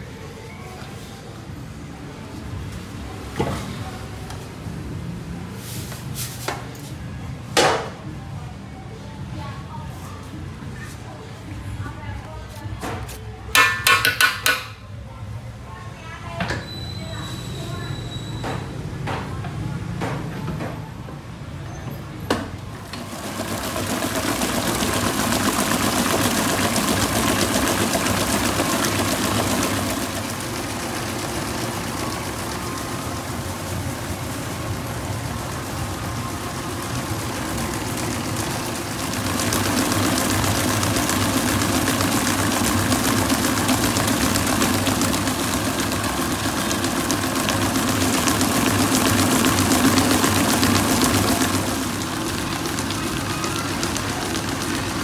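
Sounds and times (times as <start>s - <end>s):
stand mixer churning batter: 22.6s - 55.0s.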